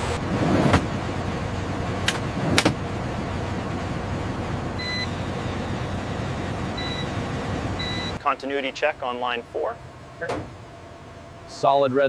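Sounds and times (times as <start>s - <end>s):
steady background noise: 0.0s - 12.0s.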